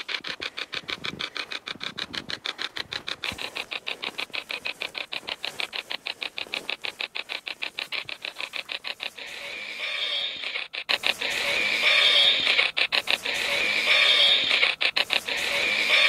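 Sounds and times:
radio static pulsing: 0:00.0 - 0:16.0.

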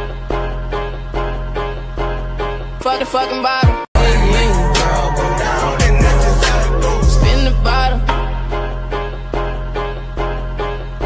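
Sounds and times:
song with heavy bass: 0:00.0 - 0:11.0
person singing: 0:02.8 - 0:08.6.

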